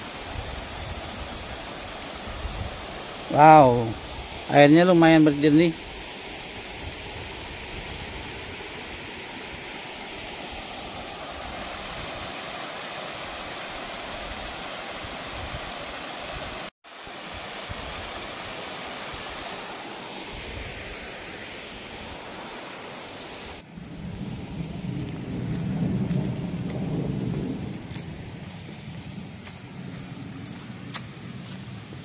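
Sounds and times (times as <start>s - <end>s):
waterfall and river rushing: 0.0s - 23.7s.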